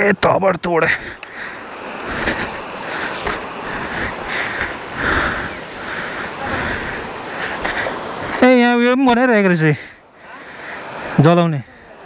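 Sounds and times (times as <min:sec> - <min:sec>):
river rushing: 0:00.0 - 0:12.0
footsteps on dry grass and gravel: 0:01.6 - 0:04.3.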